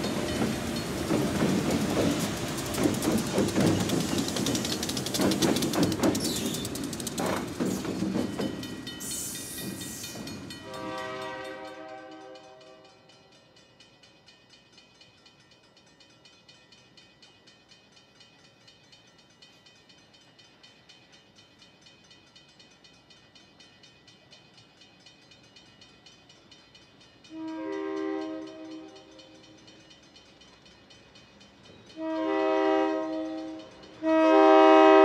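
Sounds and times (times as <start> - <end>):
crossing bell ringing: 0.0 - 35.0
locomotive horn: 10.6 - 13.0, 27.3 - 28.9, 32.0 - 35.0.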